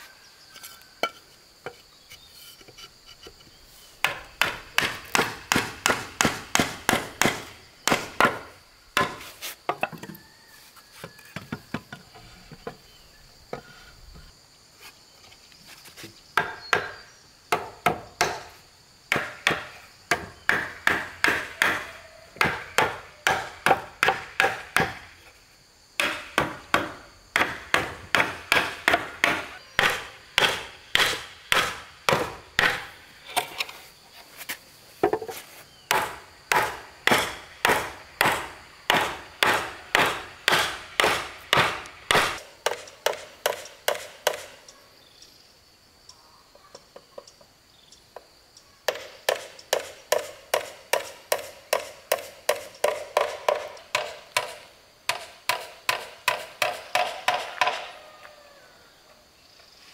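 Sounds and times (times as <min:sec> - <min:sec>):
chopping wood: 0:04.0 - 0:09.9, 0:16.4 - 0:18.5, 0:19.1 - 0:25.1, 0:26.0 - 0:32.9, 0:35.9 - 0:44.5, 0:48.9 - 0:57.9.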